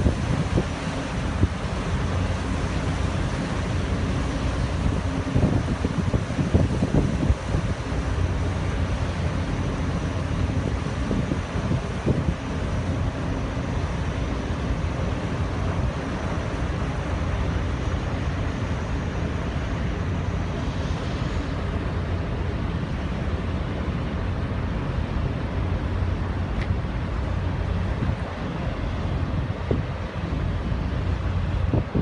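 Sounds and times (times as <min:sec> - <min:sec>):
wind buffeting microphone: 0:00.0 - 0:17.1, 0:26.2 - 0:32.0
propellers churning water: 0:00.0 - 0:32.0
ship engines rumbling: 0:00.0 - 0:32.0.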